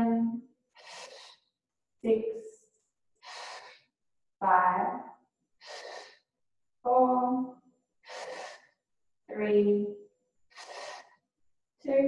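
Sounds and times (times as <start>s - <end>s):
woman breathing: 0.7s - 1.6s, 3.2s - 4.0s, 5.6s - 6.4s, 8.0s - 8.8s, 10.4s - 11.3s.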